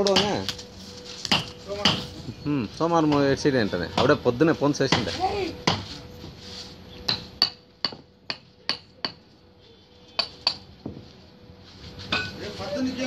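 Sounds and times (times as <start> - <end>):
hammer striking bricks: 0.0 - 0.5, 1.3 - 2.1, 4.9 - 5.9, 7.1 - 9.2.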